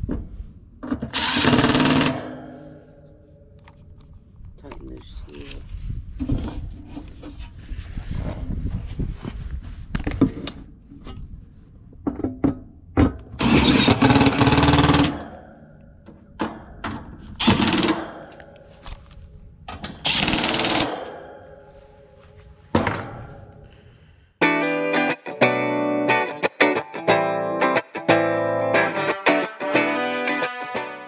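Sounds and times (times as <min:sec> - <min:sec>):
cordless drill driving screws: 0:01.1 - 0:02.2
guitar music: 0:24.4 - 0:31.0.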